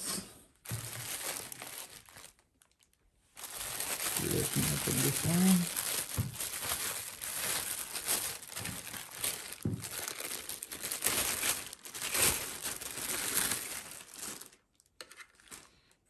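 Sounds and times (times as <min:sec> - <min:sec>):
plastic bag crinkling: 0:00.6 - 0:16.0.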